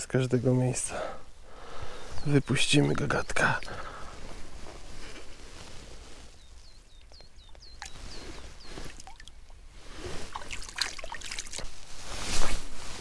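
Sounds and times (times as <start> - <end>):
water dripping into lake: 7.0 - 8.0, 8.8 - 9.6, 10.3 - 11.7
hands splashing in water: 10.3 - 11.8.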